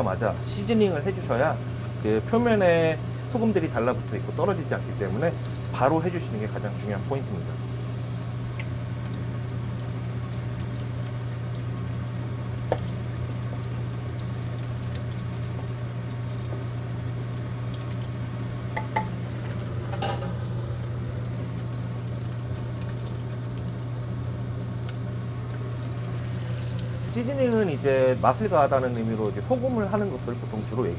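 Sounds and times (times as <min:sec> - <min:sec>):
low hum: 0:07.4 - 0:30.3
food deep-frying in oil: 0:08.3 - 0:30.9.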